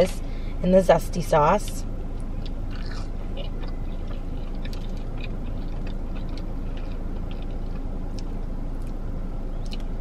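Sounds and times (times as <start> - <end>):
car engine rumble inside cabin: 0.0 - 10.0.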